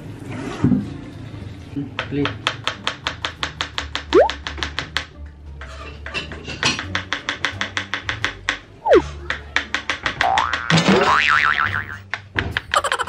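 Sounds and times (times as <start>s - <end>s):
knife chopping on cutting board: 6.2s - 10.3s.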